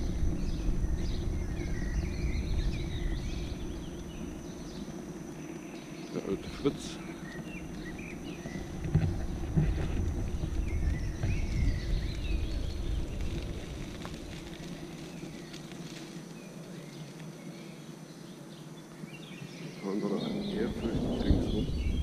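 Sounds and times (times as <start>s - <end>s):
wind on microphone: 0.0s - 5.0s, 7.4s - 14.8s, 20.1s - 22.0s
electric unicycle rumbling: 0.0s - 17.8s, 19.2s - 22.0s
birds chirping: 0.0s - 22.0s.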